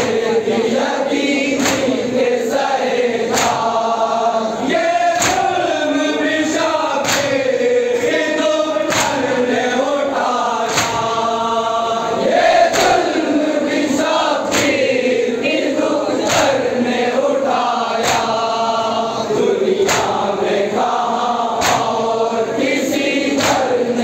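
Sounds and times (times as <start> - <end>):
lead reciter voice: 0.0 - 24.0
men chanting in unison: 0.0 - 24.0
chest-beating slaps: 1.4 - 2.2, 3.3 - 3.9, 5.1 - 5.7, 7.0 - 7.4, 8.8 - 9.4, 10.6 - 11.2, 12.7 - 13.2, 14.4 - 14.9, 18.0 - 18.6, 19.8 - 20.4, 21.6 - 22.1, 23.3 - 23.8.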